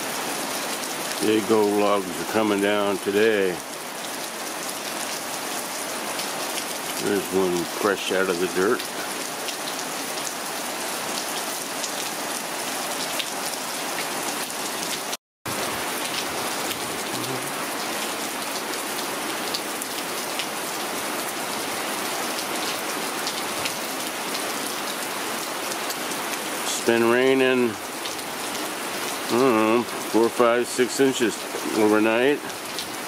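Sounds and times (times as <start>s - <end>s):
heavy rain falling: 0.0s - 33.0s.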